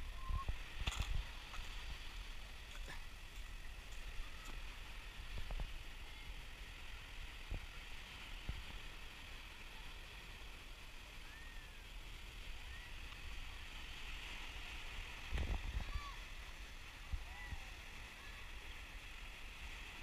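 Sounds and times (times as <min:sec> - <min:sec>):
gentle surf on shore: 0:00.0 - 0:20.0
wind rumble on microphone: 0:00.0 - 0:20.0.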